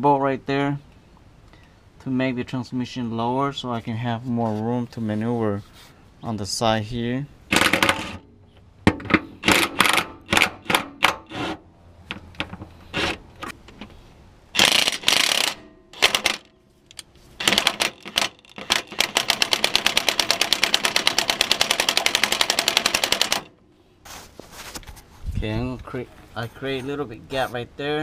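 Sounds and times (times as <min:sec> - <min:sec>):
impact wrench hammering: 0:07.5 - 0:08.2, 0:08.9 - 0:13.2, 0:14.6 - 0:16.5, 0:17.4 - 0:23.5.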